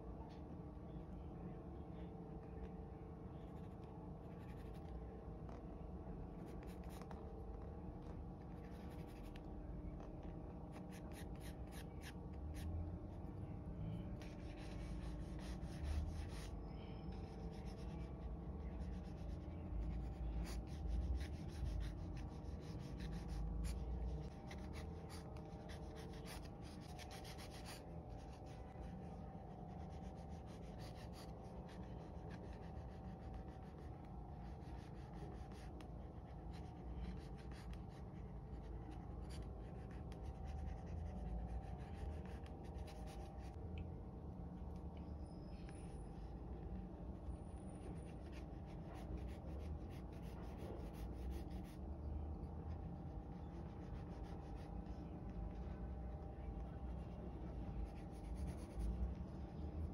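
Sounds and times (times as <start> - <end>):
pencil scratching on paper: 3.5 - 4.9, 8.5 - 9.4, 14.2 - 43.6, 47.8 - 51.8, 52.5 - 55.7, 56.8 - 59.9.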